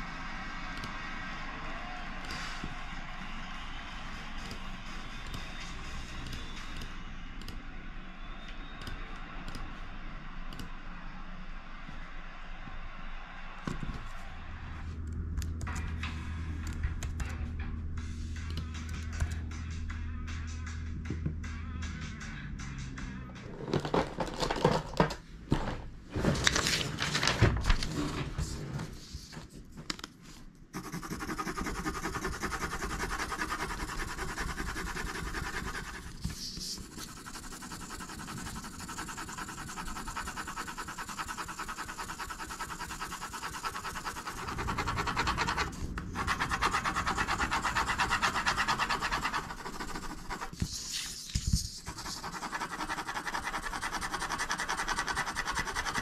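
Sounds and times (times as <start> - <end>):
pencil scratching on paper: 30.7 - 56.0.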